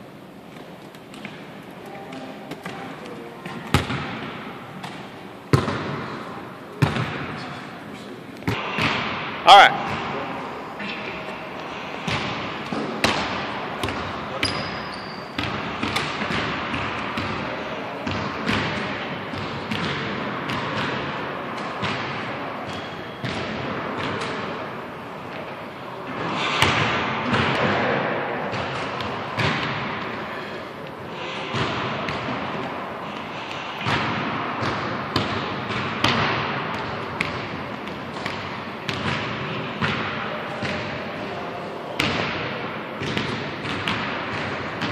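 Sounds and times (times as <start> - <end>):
gym background noise: 0.0 - 44.9
basketballs bouncing on wooden floor: 2.1 - 6.1, 6.8 - 7.3, 12.0 - 24.4, 26.6 - 30.2, 31.4 - 40.9, 42.0 - 44.9.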